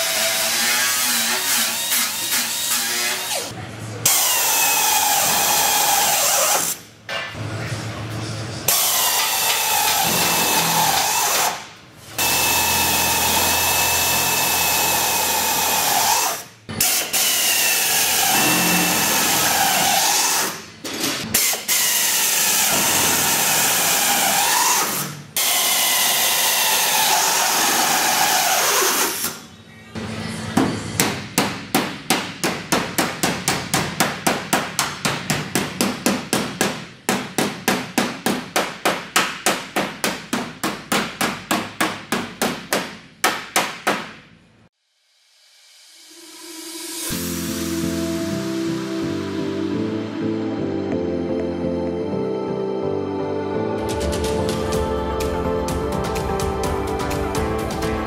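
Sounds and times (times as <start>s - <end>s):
handheld power tool on steel: 12.2s - 20.6s.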